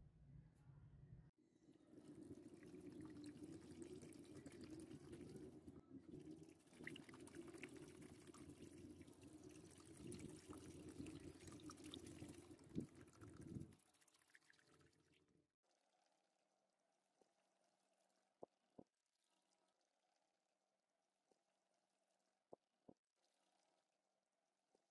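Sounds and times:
liquid pouring and splashing: 1.7 - 15.4.

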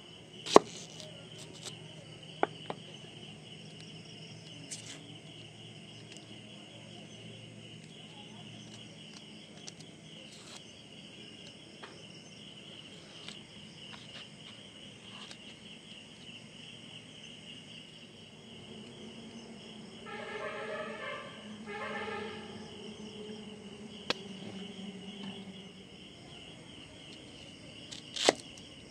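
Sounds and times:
insects chirring: 0.0 - 28.9
onion skin peeling clicks: 27.9 - 28.6.

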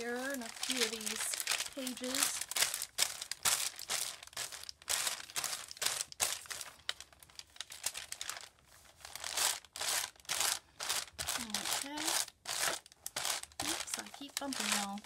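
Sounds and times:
paper rustling and crinkling: 0.0 - 15.0.

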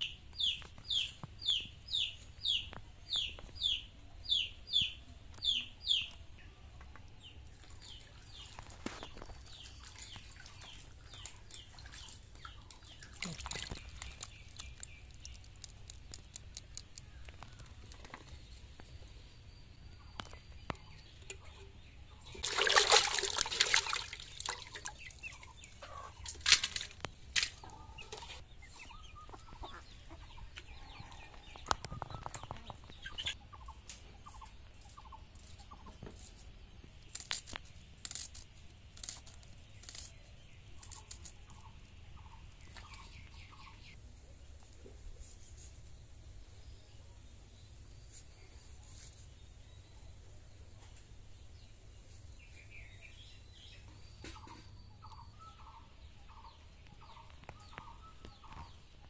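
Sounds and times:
chickens clucking: 24.6 - 26.4, 27.0 - 36.2, 53.8 - 59.0.

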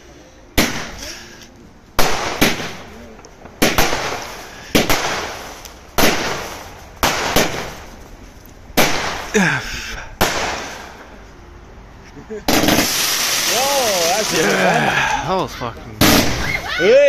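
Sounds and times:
fireworks bursting with hissing tails: 0.6 - 9.4, 10.1 - 11.2, 12.5 - 14.7, 16.0 - 16.8.

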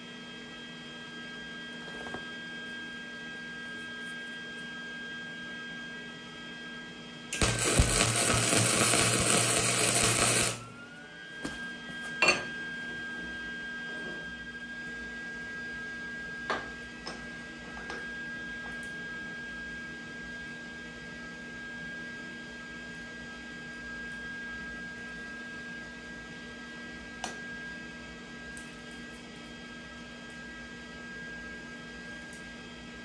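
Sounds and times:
electrical hum: 7.3 - 14.6.

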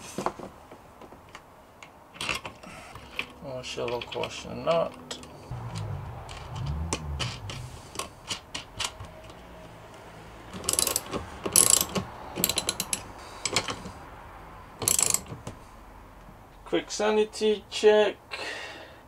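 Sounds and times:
ratchet wrench clicking: 10.6 - 13.7, 14.8 - 15.3.

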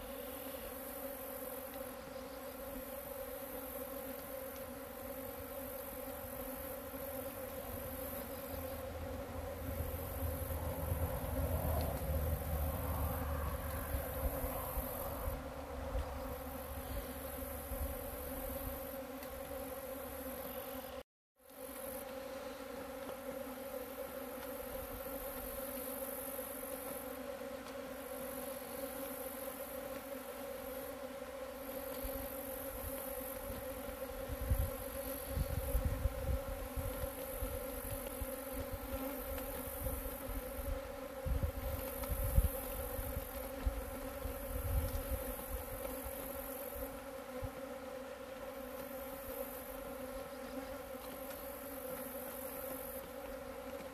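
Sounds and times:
bees buzzing: 0.0 - 53.9
wind rumbling on microphone: 9.6 - 16.4, 34.3 - 38.9, 39.8 - 45.8.

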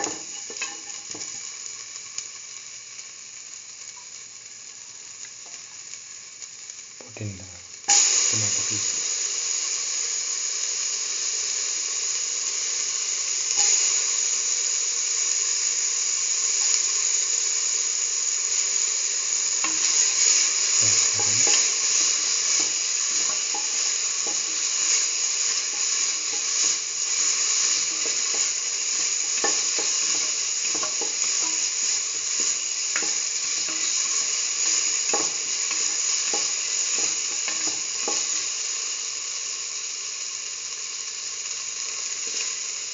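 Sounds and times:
onion sizzling in oil: 0.0 - 42.9.

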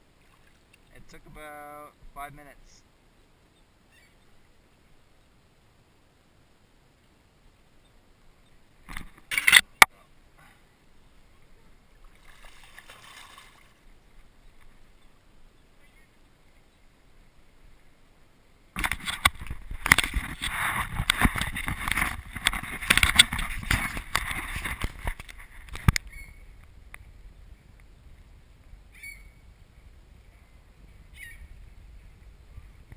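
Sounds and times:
camera rubbing against clothing: 18.8 - 26.4.

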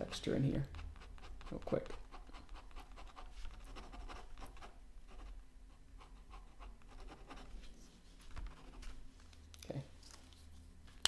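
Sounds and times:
pen scratching on paper: 0.0 - 5.4, 6.0 - 7.6, 8.4 - 8.9.

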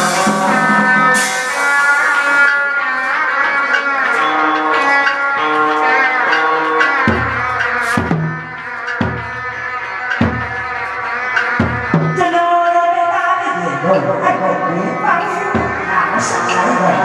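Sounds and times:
plucked string melody: 0.0 - 12.8
low ringing drum strikes: 7.0 - 10.7, 15.5 - 16.8.

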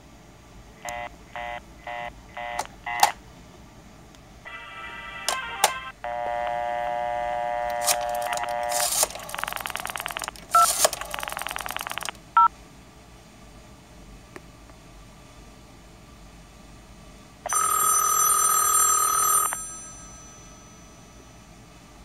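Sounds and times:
dial tone: 4.5 - 12.1, 17.5 - 20.3.

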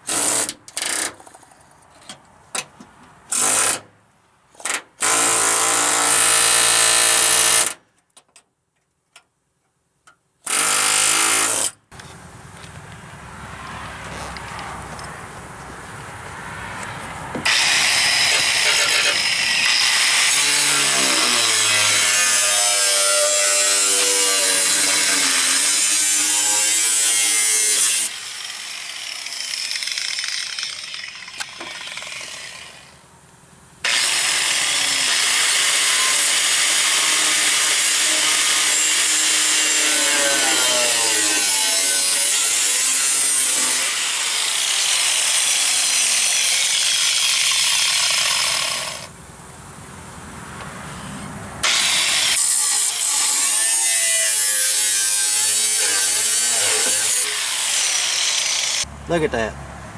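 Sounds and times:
angle grinder cutting sheet steel: 17.5 - 32.9, 33.8 - 49.1, 51.6 - 58.9.

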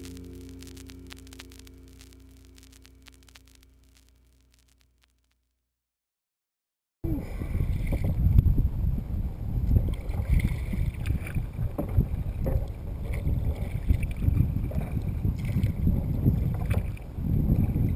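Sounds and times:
wind buffeting microphone: 7.0 - 17.9.

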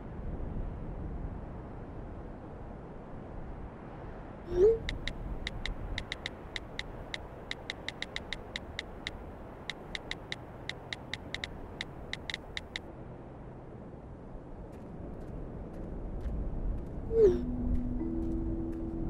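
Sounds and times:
phone keyboard tap clicks: 4.9 - 12.8.

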